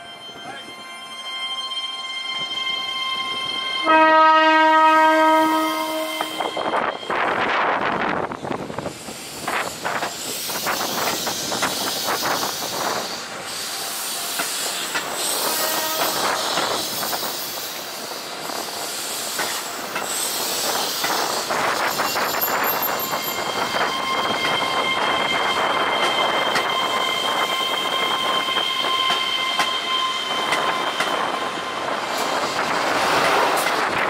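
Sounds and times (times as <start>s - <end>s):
train rushing noise: 2.2s - 34.0s
train wheels clacking: 9.4s - 34.0s.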